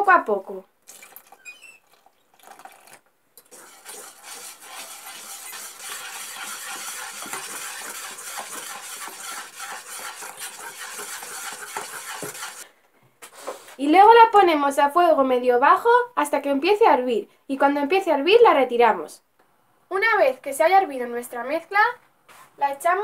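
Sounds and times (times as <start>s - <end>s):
whisk beating liquid in pan: 3.4s - 12.7s.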